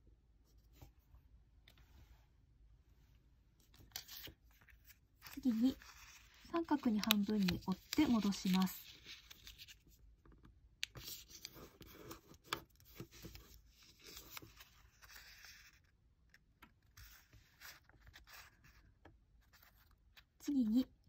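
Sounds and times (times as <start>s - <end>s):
paper rustling and crinkling: 3.7s - 10.0s, 10.9s - 15.8s.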